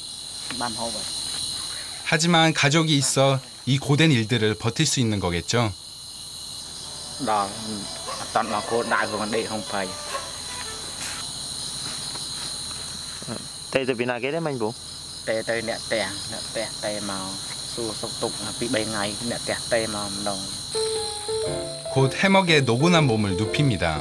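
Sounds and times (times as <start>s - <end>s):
night insects trilling: 0.0s - 24.0s
people's voices: 7.2s - 11.2s, 22.0s - 24.0s.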